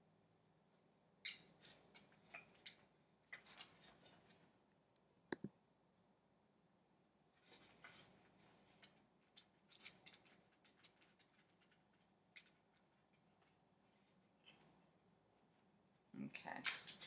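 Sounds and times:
faint small clicks of screw tightening: 0:08.8 - 0:13.6.

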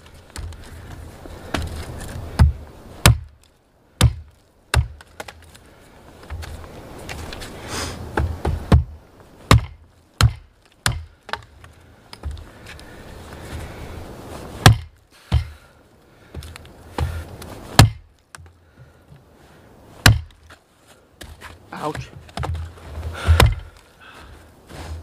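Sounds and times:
axe chopping a branch: 0:02.4 - 0:03.4, 0:04.0 - 0:05.4, 0:08.1 - 0:08.9, 0:09.5 - 0:11.5, 0:14.6 - 0:15.6, 0:16.9 - 0:18.4, 0:20.0 - 0:20.4, 0:23.2 - 0:23.6.

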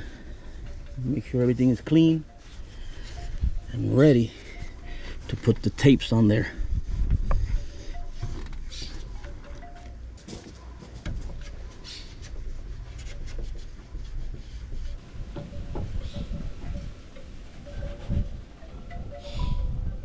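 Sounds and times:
wind rumble on microphone: 0:06.4 - 0:08.6, 0:13.5 - 0:20.0.

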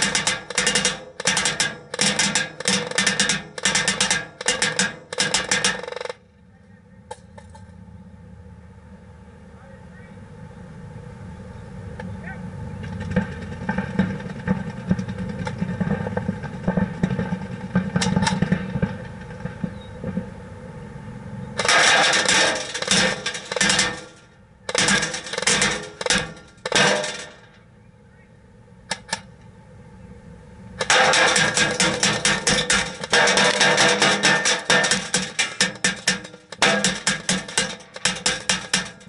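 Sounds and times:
bbs striking plexiglass shield: 0:00.0 - 0:06.1, 0:30.8 - 0:39.0
low rumble: 0:06.1 - 0:37.1.

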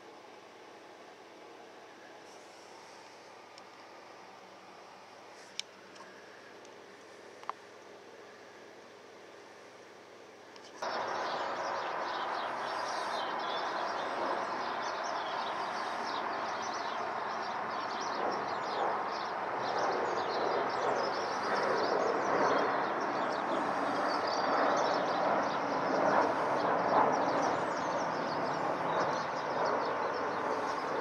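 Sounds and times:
jet engine overhead: 0:00.0 - 0:31.0
small birds chirping: 0:10.6 - 0:31.0.

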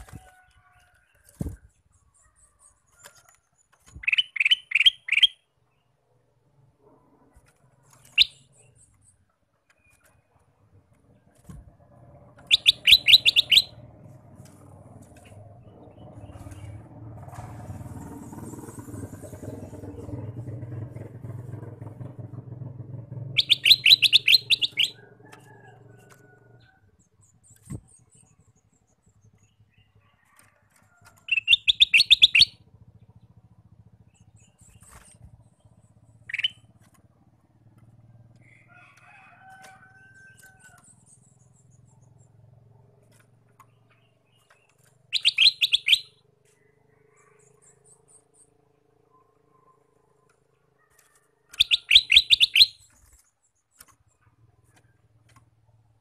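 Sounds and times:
bird chattering and calling: 0:03.9 - 0:05.5, 0:12.3 - 0:13.9, 0:23.3 - 0:25.0, 0:31.3 - 0:32.6, 0:36.0 - 0:36.8, 0:43.8 - 0:48.5, 0:51.5 - 0:53.1
low engine drone: 0:06.5 - 0:26.2.

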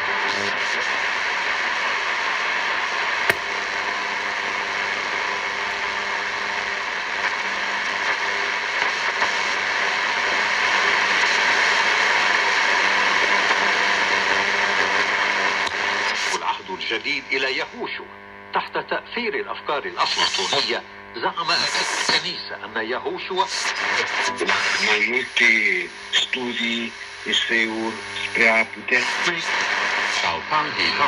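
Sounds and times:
sharp click: 0:03.3 - 0:03.6
radio static hiss: 0:23.6 - 0:31.0.

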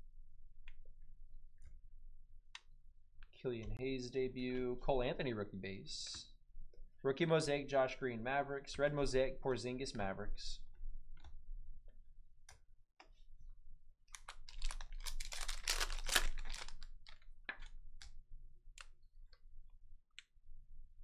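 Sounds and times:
foil wrapper crinkling and tearing: 0:14.1 - 0:18.1.

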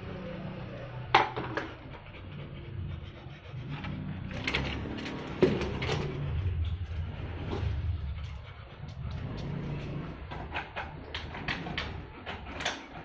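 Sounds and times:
low rumble: 0:02.0 - 0:12.3.

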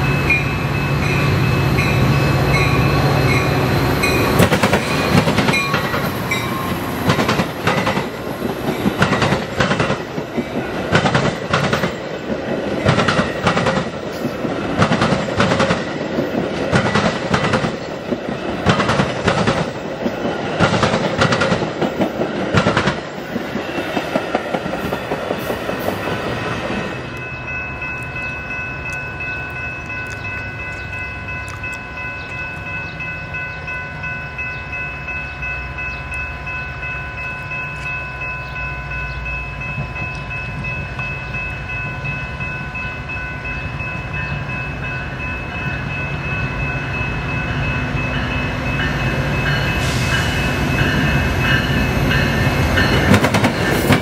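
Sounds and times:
crossing bell ringing: 0:00.0 - 0:22.4, 0:23.0 - 0:54.0
train wheels clacking over rail joints: 0:04.0 - 0:27.3, 0:49.5 - 0:54.0.

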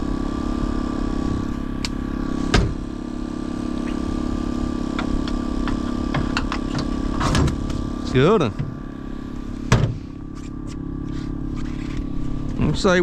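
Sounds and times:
engine humming: 0:00.0 - 0:13.0
loud thump: 0:02.4 - 0:02.8, 0:09.7 - 0:10.2.

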